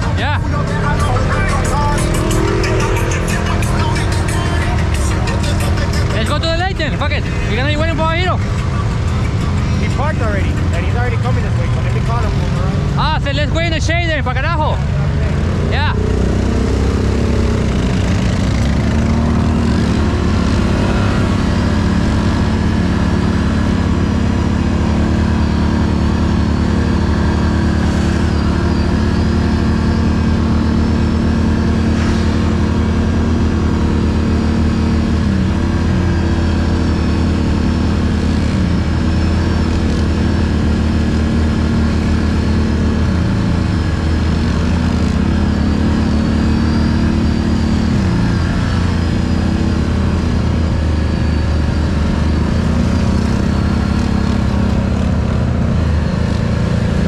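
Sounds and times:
atv engine running: 0.0 - 57.0.

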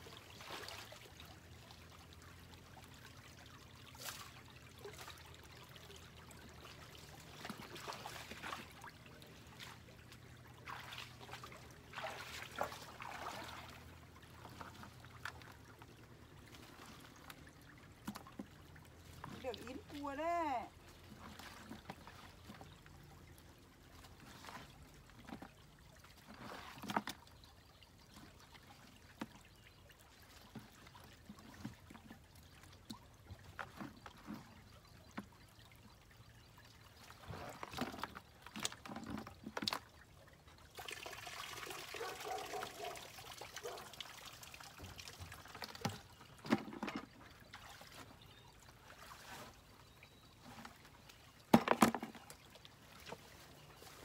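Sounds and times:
water splashing and trickling: 0.0 - 54.0
water pouring from bucket: 3.9 - 9.8, 10.6 - 15.5, 24.2 - 27.4, 37.1 - 50.7
bucket knocks: 51.5 - 52.3.

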